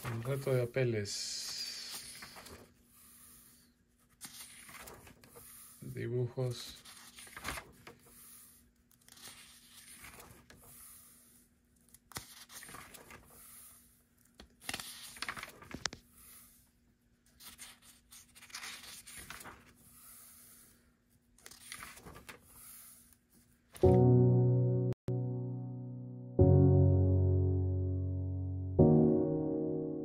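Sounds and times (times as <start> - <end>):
paper pages rustling: 0.0 - 10.9, 11.8 - 16.6, 17.2 - 24.0.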